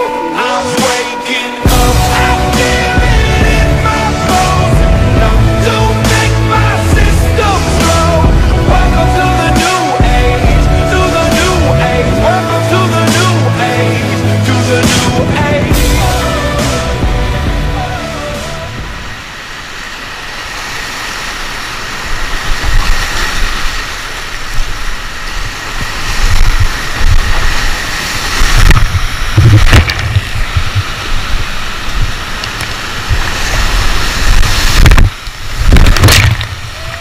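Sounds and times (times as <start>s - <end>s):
rushing whitewater: 0.0s - 37.0s
loud splashes: 0.7s - 37.0s
wind buffeting microphone: 14.8s - 17.8s, 22.0s - 37.0s.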